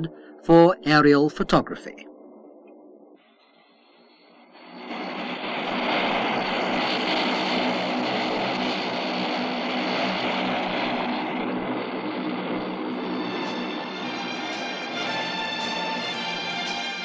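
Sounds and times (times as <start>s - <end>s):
turboprop aircraft propeller drone: 0.0s - 17.0s.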